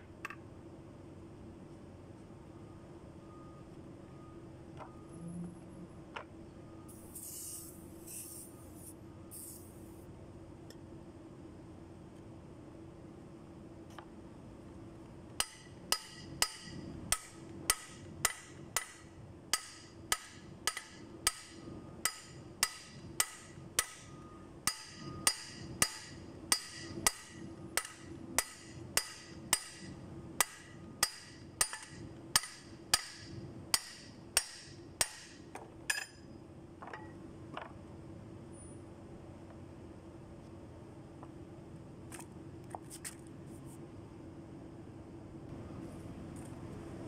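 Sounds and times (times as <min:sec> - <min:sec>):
hammer striking metal pulley: 0:15.4 - 0:36.2.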